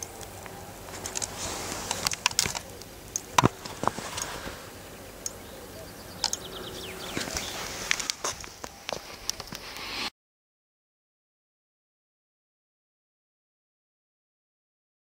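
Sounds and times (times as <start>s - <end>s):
outdoor ambience: 0.0s - 10.1s.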